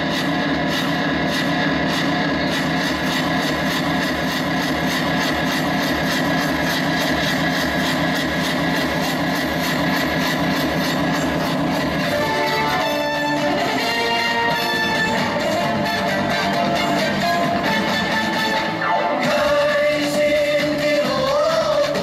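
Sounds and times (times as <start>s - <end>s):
drum beating fast rhythm: 0.0s - 22.0s.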